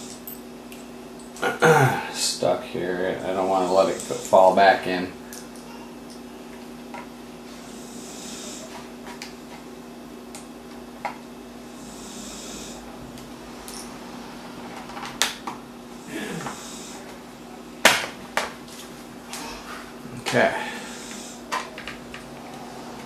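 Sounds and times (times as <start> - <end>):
breathing close to microphone: 16.0 - 17.0, 19.4 - 21.5.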